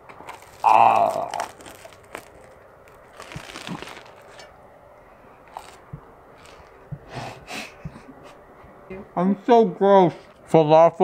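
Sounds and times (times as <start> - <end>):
bread crust crunching: 0.0 - 4.5, 5.4 - 6.8.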